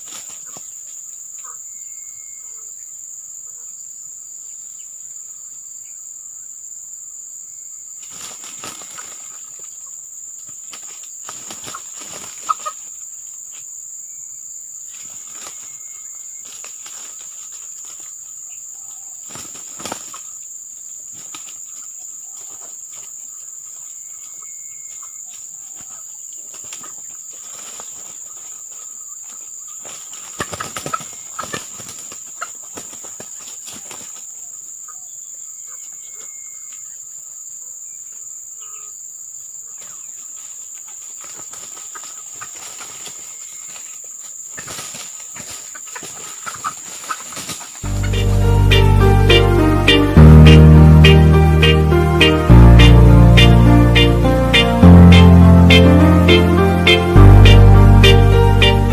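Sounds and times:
roosters wings flapping: 19.3s - 20.2s.

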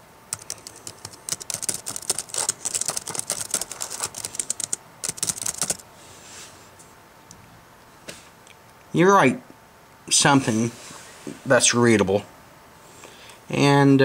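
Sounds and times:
fast typing on keyboard: 0.3s - 5.8s.

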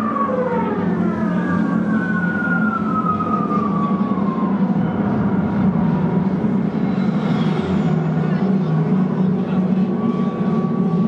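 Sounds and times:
air-raid siren winding down: 0.0s - 7.2s, 9.8s - 11.0s
steady low drone: 0.0s - 11.0s.

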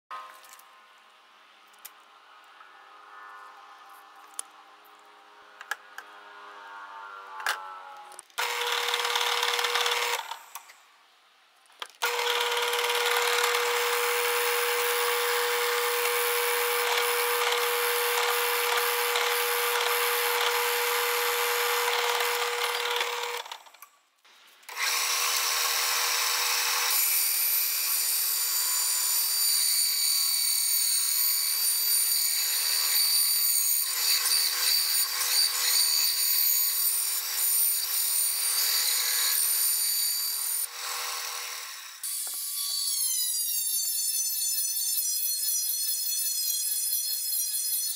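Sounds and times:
bandsaw cutting wood: 7.2s - 10.6s, 12.0s - 23.8s, 24.7s - 47.9s
drill press motor hum: 8.4s - 10.7s, 12.0s - 23.8s, 24.7s - 27.0s.

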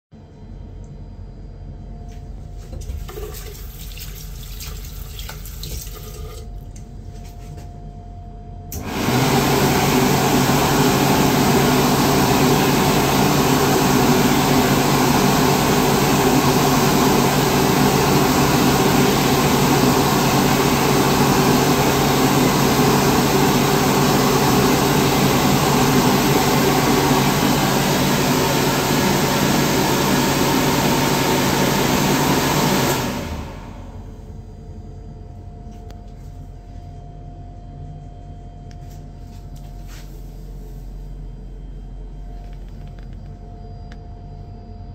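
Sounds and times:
hand dryer switching on: 8.7s - 34.0s
hand dryer air rushing: 8.7s - 34.1s.

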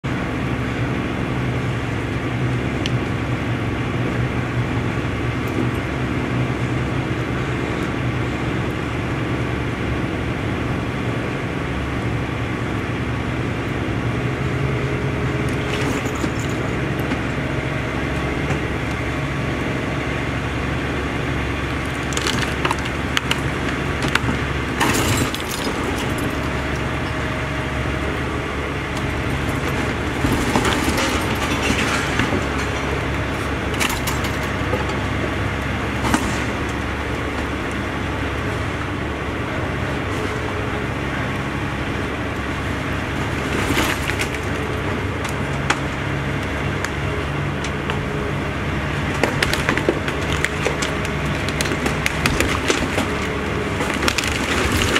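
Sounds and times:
crane engine running: 0.0s - 54.9s
wood cracking and crunching: 20.6s - 38.2s, 42.4s - 54.9s.

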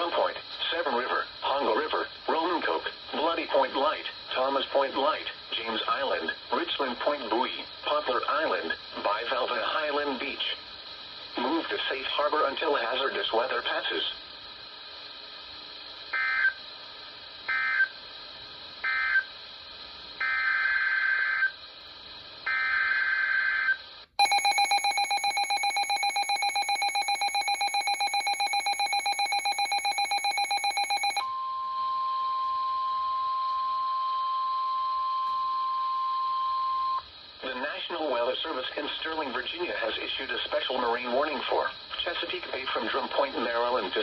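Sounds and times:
steady alarm tone: 22.5s - 37.1s
data bursts: 24.2s - 31.3s
digital data chirps: 24.2s - 31.3s
pulsing electronic alert tone: 24.2s - 31.3s.

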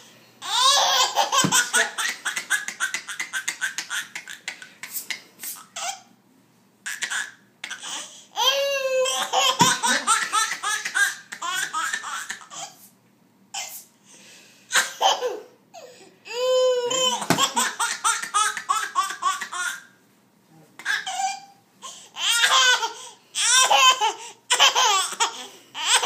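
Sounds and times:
baby laughing: 0.4s - 4.8s, 6.8s - 12.8s, 14.7s - 15.5s, 16.4s - 19.9s, 22.2s - 26.0s.

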